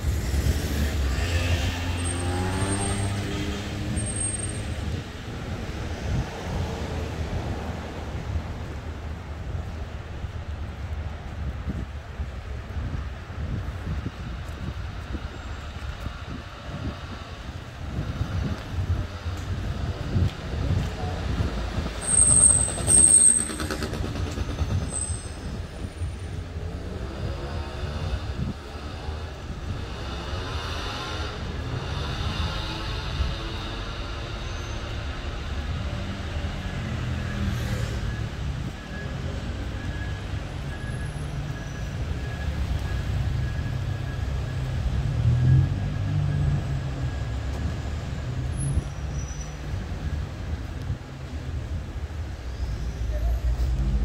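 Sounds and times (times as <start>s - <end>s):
city traffic rumble: 0.0s - 54.0s
sharp high-pitched squeal: 37.1s - 44.9s.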